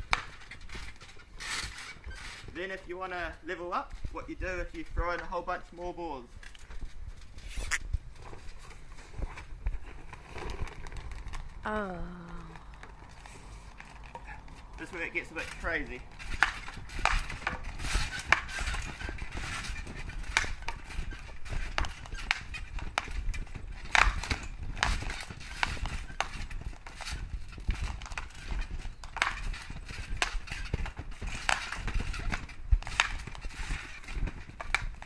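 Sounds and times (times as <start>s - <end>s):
balls thudding on trampoline mat: 15.5s - 35.0s.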